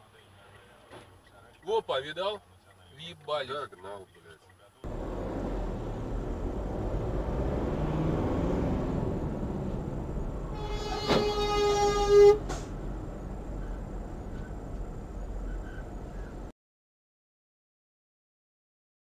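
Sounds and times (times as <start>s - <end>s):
moving car road noise: 4.8s - 16.5s
vehicle horn blast: 10.5s - 12.7s.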